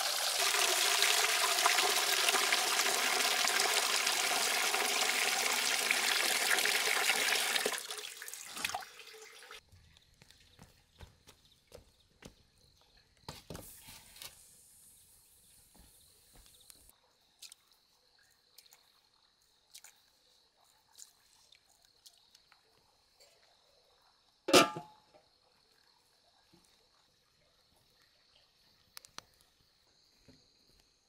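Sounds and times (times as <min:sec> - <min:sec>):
metal lid clanging on pot: 0:24.5 - 0:24.9.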